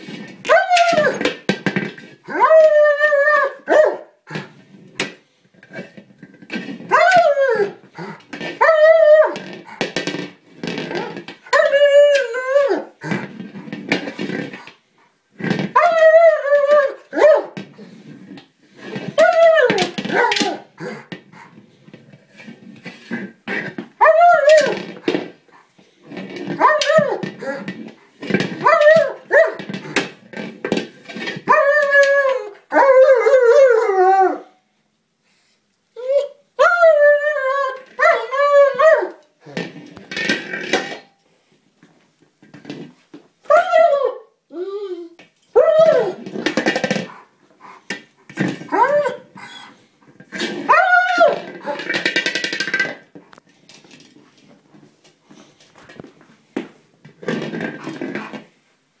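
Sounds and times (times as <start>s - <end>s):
dog whining yowls: 0.5s - 1.2s, 2.3s - 4.0s, 6.9s - 7.8s, 8.6s - 9.4s, 11.0s - 13.0s, 15.7s - 17.6s, 19.1s - 21.0s, 24.0s - 24.8s, 26.6s - 27.6s, 28.6s - 29.6s, 31.4s - 34.6s, 36.0s - 39.2s, 43.5s - 46.2s, 48.7s - 49.8s, 50.6s - 51.8s
dog scuffling with plastic toy: 4.3s - 33.0s, 45.6s - 58.6s.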